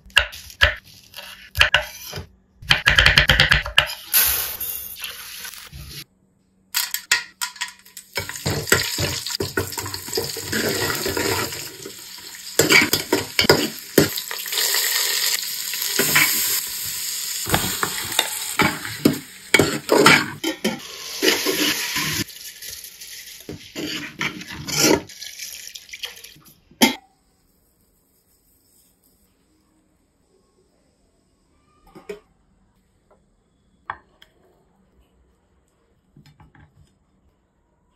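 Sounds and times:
food frying: 7.8s - 26.4s
water poured into steel bowl: 25.1s - 26.4s.

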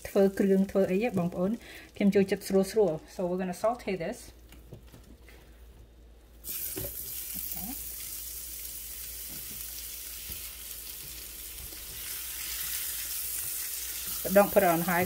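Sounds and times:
mushrooms sizzling in butter: 6.4s - 15.0s.

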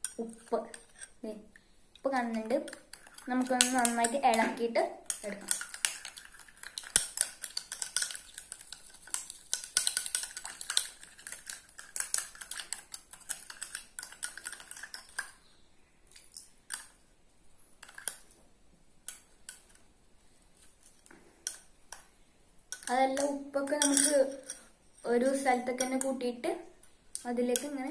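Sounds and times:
spoon clinking against bowl: 22.8s - 24.7s.

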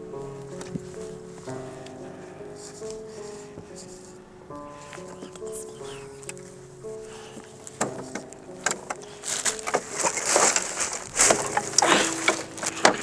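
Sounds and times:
faint music: 0.0s - 13.0s
plastic tarp crackling and rustling: 7.2s - 13.0s
clicks and scuffs: 7.4s - 13.0s.

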